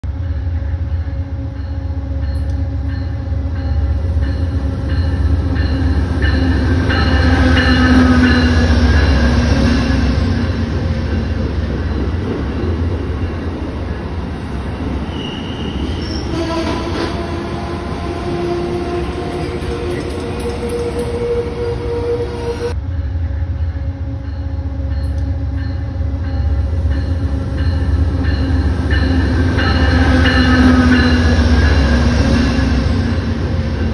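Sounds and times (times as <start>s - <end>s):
train rumble: 0.0s - 33.9s
train wheels squealing: 14.9s - 17.2s.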